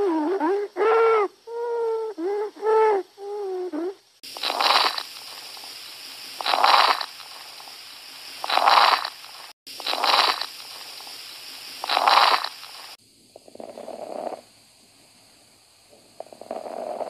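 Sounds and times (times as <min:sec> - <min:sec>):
background hiss: 0:00.0 - 0:17.0
crackling breath sounds: 0:03.8 - 0:14.5.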